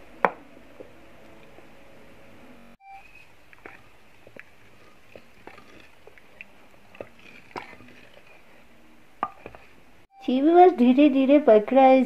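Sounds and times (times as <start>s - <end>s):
wooden spatula stirring in pot: 3.2s - 9.9s.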